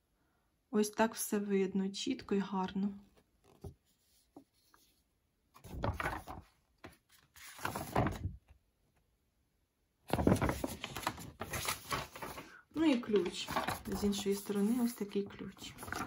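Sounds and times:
thick paper rustling: 3.2s - 8.5s, 10.1s - 16.0s.

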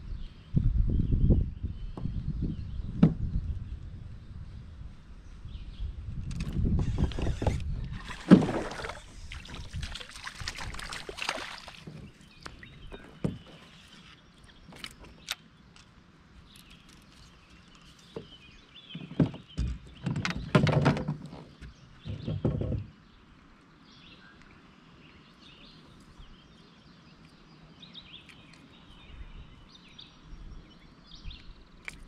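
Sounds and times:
small birds chirping: 8.9s - 20.6s, 21.3s - 32.0s.

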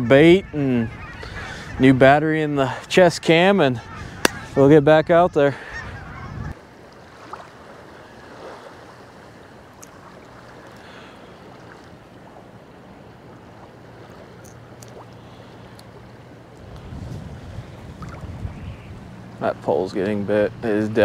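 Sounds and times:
light wind: 0.0s - 21.0s
small waves lapping: 2.4s - 21.0s.

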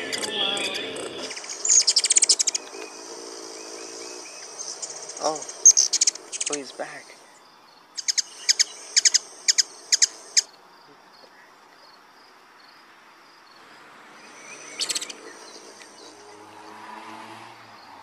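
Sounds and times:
hummingbird chip calls: 0.0s - 11.4s, 14.1s - 16.6s.

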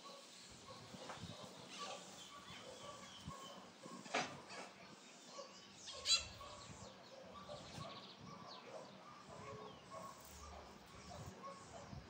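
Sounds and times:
birds chirping: 0.0s - 12.0s
bird trill: 5.8s - 6.5s.

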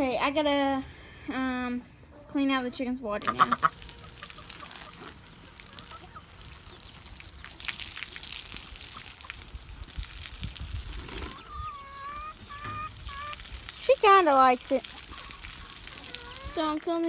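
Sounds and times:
bird calling: 3.2s - 7.6s, 11.2s - 13.6s
hose spray splashing on grass: 3.2s - 16.8s.

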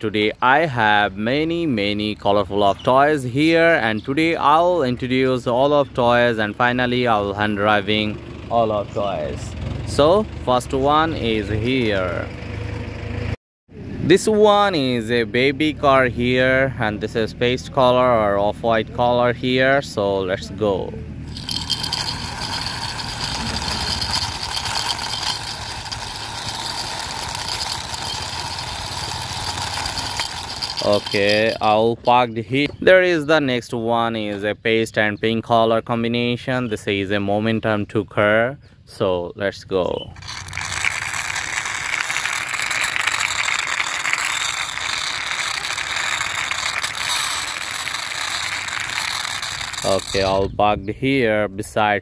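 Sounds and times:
toy wheels rattling whir: 21.2s - 32.2s, 40.1s - 50.5s.

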